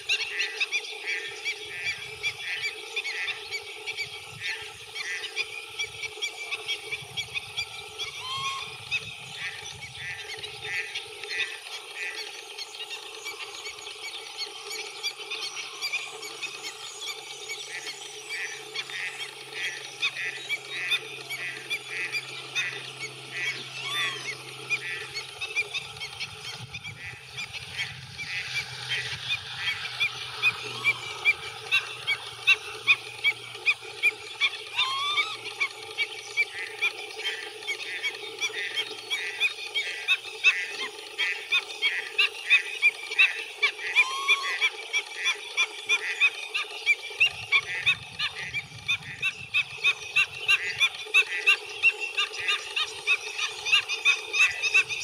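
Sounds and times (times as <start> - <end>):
chorus of short animal calls: 18.8 - 35.7.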